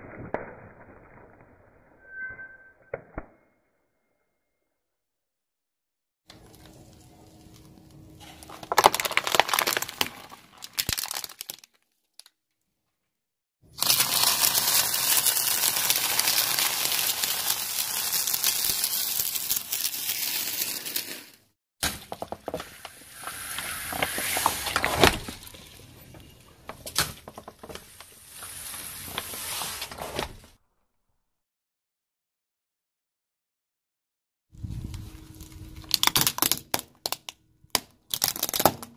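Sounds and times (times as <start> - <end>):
plastic bottles crackling: 6.3 - 11.8, 13.7 - 21.3, 35.8 - 38.9
cracking under tyre: 6.3 - 12.4, 34.8 - 38.9
tyre crunching snacks: 7.6 - 12.3, 13.7 - 21.3, 34.9 - 38.9.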